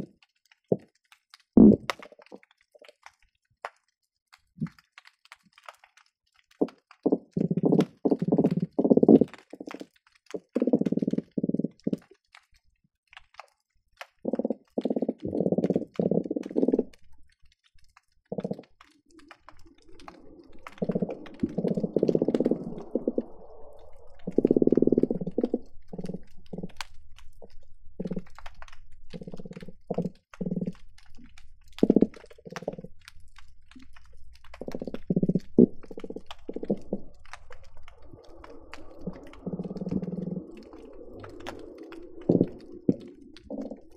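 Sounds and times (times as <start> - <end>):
faint sharp clicks: 1.1 - 43.9
low rapid grunting pulses underwater: 14.3 - 17.0, 18.3 - 26.8, 34.6 - 43.9.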